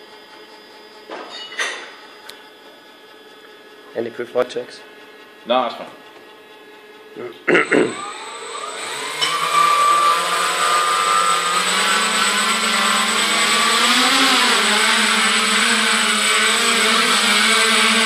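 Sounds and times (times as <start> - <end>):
drone propellers whining: 7.5 - 18.0.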